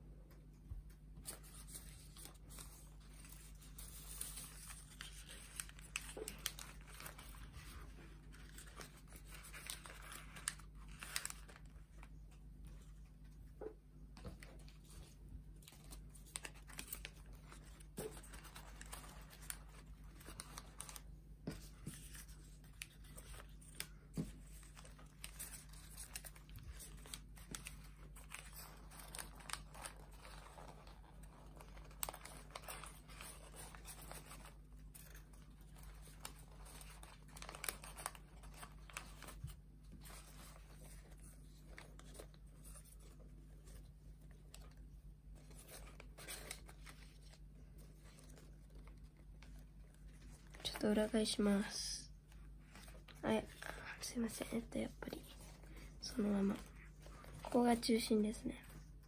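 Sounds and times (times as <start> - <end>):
paper rustling and crinkling: 0.9 - 59.0
paper clicks and scrapes: 45.4 - 51.0.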